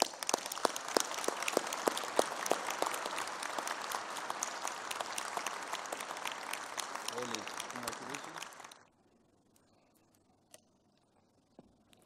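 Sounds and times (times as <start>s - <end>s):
audience applauding: 0.0s - 8.8s
close loud claps: 0.0s - 8.8s.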